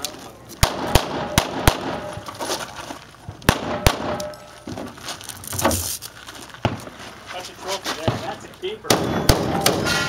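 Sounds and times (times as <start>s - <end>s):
pistol shots: 0.6s - 2.2s, 3.5s - 4.5s, 8.9s - 10.0s.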